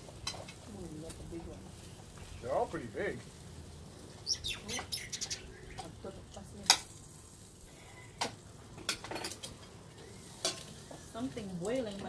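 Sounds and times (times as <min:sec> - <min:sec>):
cooking utensils clinking: 0:08.2 - 0:09.8, 0:10.4 - 0:11.0.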